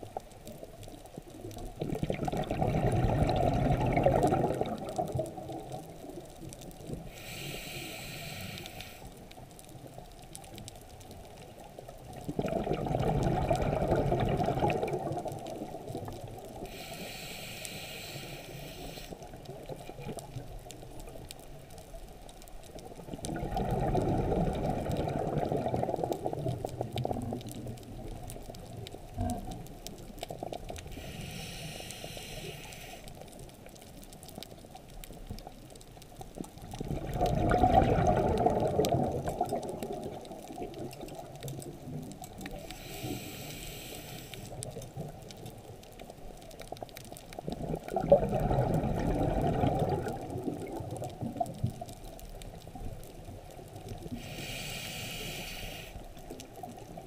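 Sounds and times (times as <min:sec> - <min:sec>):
exhaled bubbles gushing: 0:01.5 - 0:06.3, 0:12.1 - 0:16.6, 0:23.0 - 0:29.4, 0:36.5 - 0:42.6, 0:47.4 - 0:54.1
regulator hissing inhale: 0:07.0 - 0:09.2, 0:16.6 - 0:19.4, 0:30.8 - 0:33.2, 0:42.5 - 0:44.6, 0:54.1 - 0:56.4.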